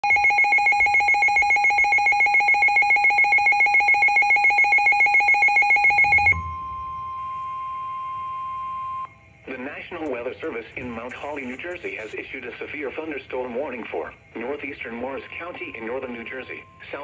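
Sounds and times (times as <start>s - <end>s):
pulsing two-pitch alert beep: 0.0s - 9.1s
steady alarm tone: 0.0s - 17.0s.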